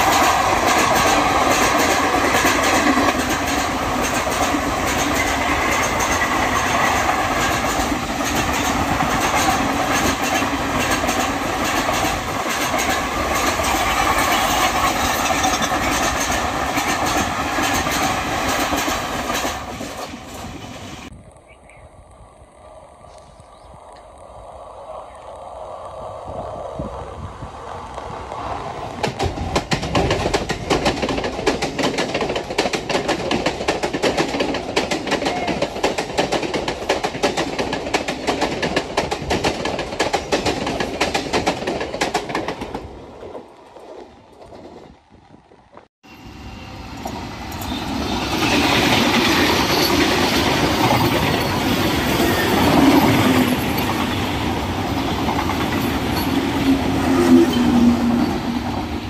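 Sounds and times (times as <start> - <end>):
train wheels clattering over rail joints: 0.0 - 20.9, 29.0 - 44.9
train wheels on rail: 0.0 - 59.0.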